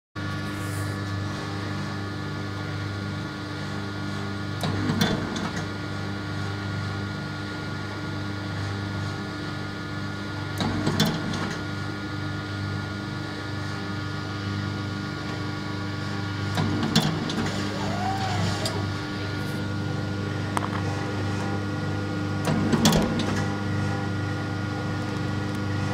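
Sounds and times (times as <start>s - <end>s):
machine motor hum: 13.4s - 25.9s
machine working stroke: 17.3s - 19.8s.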